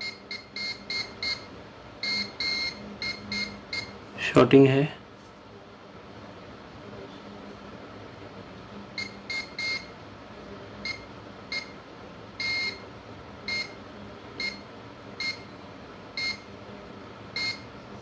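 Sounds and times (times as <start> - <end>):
multimeter buzzer beeps: 0.0 - 4.0, 9.0 - 10.0, 10.8 - 11.8, 12.4 - 12.8, 13.4 - 13.8, 14.4 - 15.5, 16.2 - 16.5, 17.3 - 17.7.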